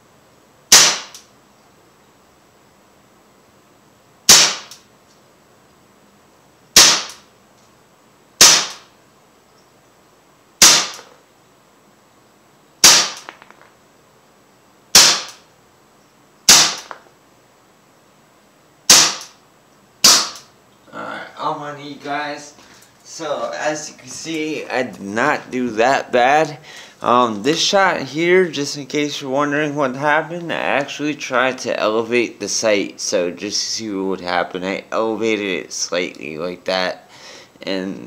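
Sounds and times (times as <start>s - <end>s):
bb pistol shots: 0.7s - 1.2s, 4.3s - 4.8s, 6.8s - 7.3s, 8.4s - 8.9s, 10.6s - 11.1s, 12.8s - 13.5s, 14.9s - 15.4s, 16.5s - 17.0s, 18.9s - 19.4s, 20.0s - 20.5s.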